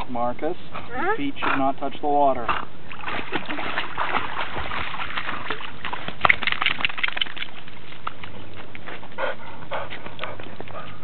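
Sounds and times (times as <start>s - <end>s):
puppy panting: 0.6s - 1.8s, 8.7s - 11.0s
water splashing: 2.8s - 9.1s
paws clicking on wet gravel: 5.2s - 11.0s.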